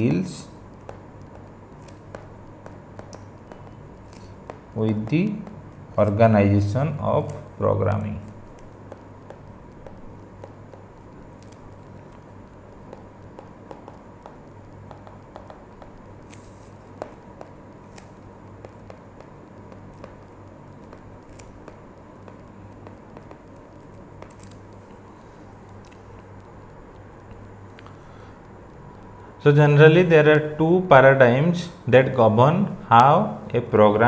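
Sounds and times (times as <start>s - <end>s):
low electrical hum: 0.0s - 34.0s
stylus tapping on pen tablet: 0.6s - 6.2s, 8.2s - 29.2s.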